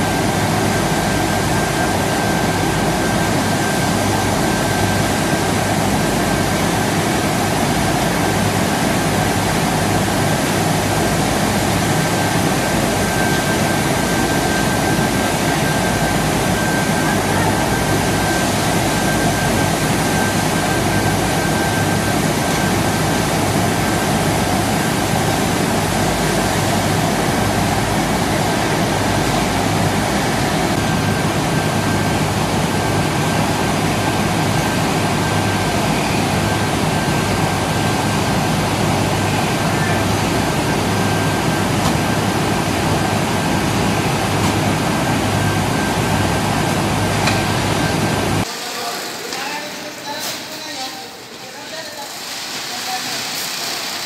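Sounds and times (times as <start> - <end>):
high machine whine: 0.0 - 54.0.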